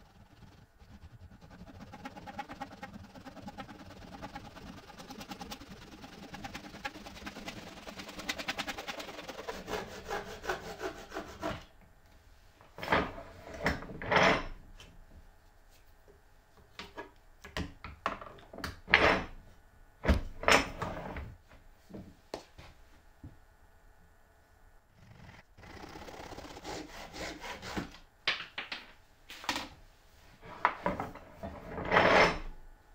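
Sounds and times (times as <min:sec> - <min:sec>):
bumps and brushing: 0:00.0 - 0:11.7, 0:25.2 - 0:28.0
hand saw cutting plastic: 0:00.0 - 0:11.7, 0:25.9 - 0:28.0.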